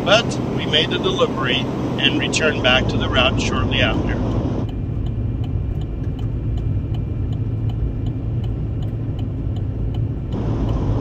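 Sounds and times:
road noise: 0.0 - 11.0
truck engine rumble: 0.0 - 11.0
faint regular ticking: 4.3 - 11.0.

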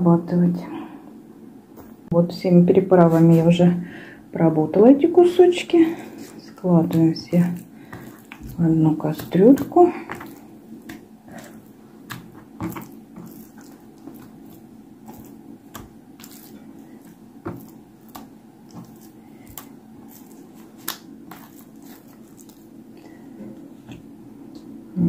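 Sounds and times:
low steady hum: 0.0 - 25.0
wet squishing of meat: 6.0 - 23.2.

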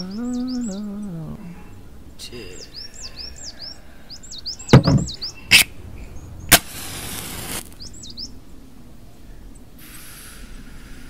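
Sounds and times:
small birds chirping: 0.0 - 11.0
sharp knock: 4.8 - 5.2
stone block thudding on concrete: 4.8 - 5.2
hissing flame: 6.5 - 8.0.

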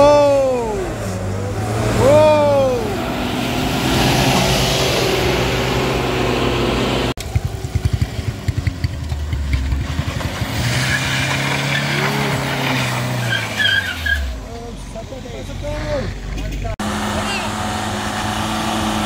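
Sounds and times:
bus diesel engine passing: 0.0 - 19.0
van engine pulling uphill: 0.0 - 19.0
motorcycle engine pulsing: 7.2 - 10.4.

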